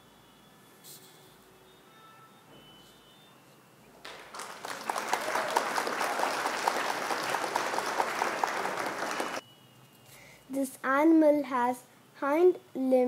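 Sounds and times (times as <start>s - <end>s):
crowd clapping: 4.0s - 9.4s.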